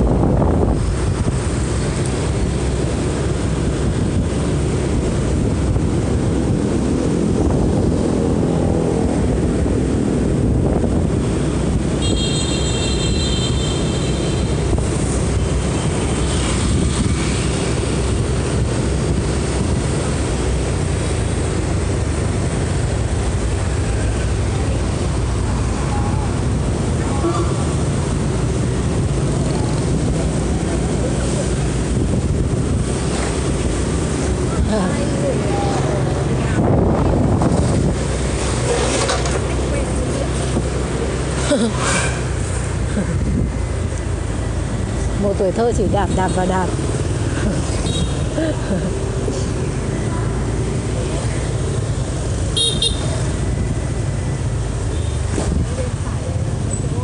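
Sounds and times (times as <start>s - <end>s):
wind buffeting microphone: 0.0s - 12.2s, 14.4s - 41.3s, 42.1s - 47.7s
scooter engine and road rumble: 0.0s - 57.0s.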